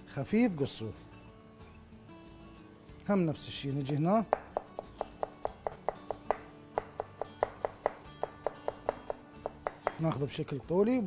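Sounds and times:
background music: 0.0 - 11.0
knife chopping on cutting board: 3.8 - 10.2.

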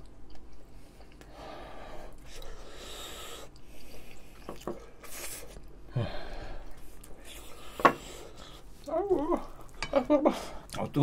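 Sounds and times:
man chewing food: 0.0 - 11.0
breathy huffs: 5.9 - 6.8.

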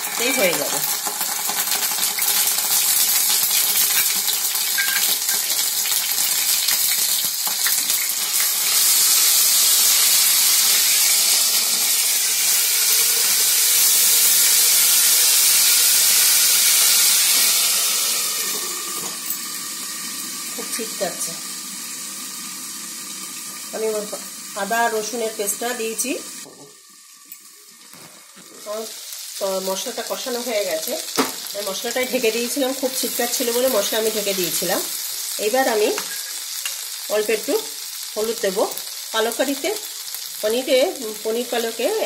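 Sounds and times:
paste sizzling in hot oil: 0.0 - 42.0.

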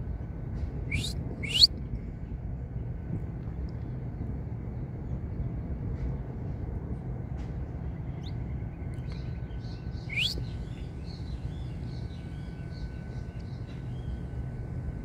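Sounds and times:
steady low rumble: 0.0 - 15.0
finches chirping: 0.9 - 1.7, 9.8 - 11.2
loud rising whistle: 0.9 - 1.7, 10.1 - 10.4.

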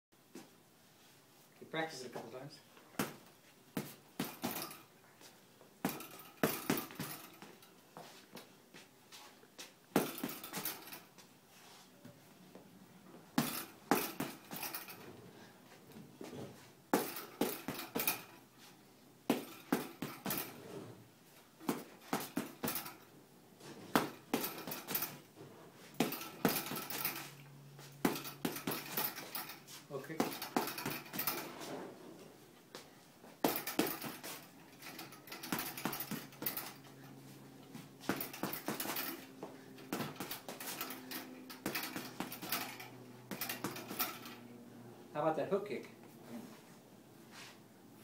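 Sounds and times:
punches hitting punching bag: 3.0 - 4.8, 5.9 - 7.4, 10.0 - 10.9, 13.4 - 14.9, 16.9 - 18.4, 19.3 - 20.5, 21.6 - 23.0, 23.9 - 25.2, 25.9 - 27.3, 28.0 - 29.5, 30.2 - 31.4, 33.4 - 36.8, 38.0 - 44.2.

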